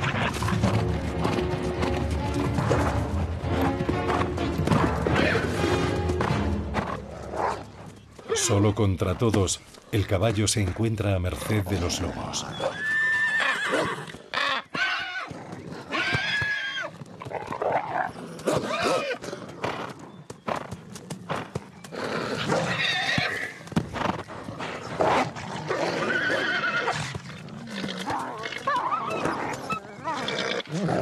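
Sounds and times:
horse neighing in distress: 0:12.4 - 0:17.0, 0:18.0 - 0:19.2, 0:22.0 - 0:23.6, 0:25.7 - 0:27.1.

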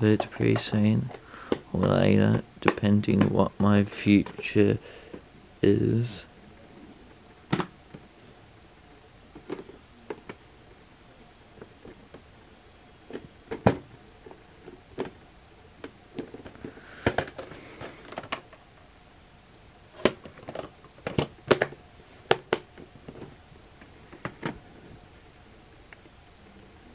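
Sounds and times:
plastic cases clicking and knocking: 0:07.5 - 0:08.0, 0:13.1 - 0:15.2, 0:15.8 - 0:18.6, 0:20.0 - 0:23.3, 0:24.1 - 0:24.6.

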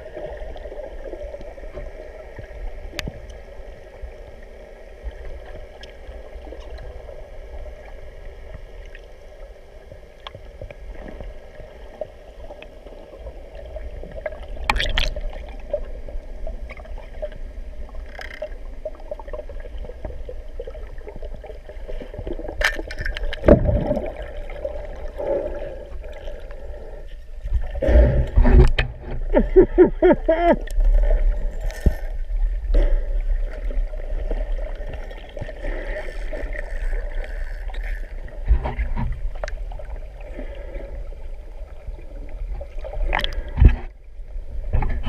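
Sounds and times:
faint hum: 0:00.0 - 0:45.0
underwater water rumble: 0:00.0 - 0:45.0.

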